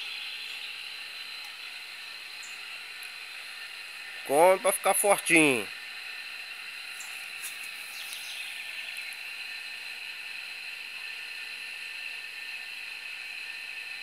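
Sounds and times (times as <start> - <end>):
high-pitched outdoor hiss: 0.0 - 14.0.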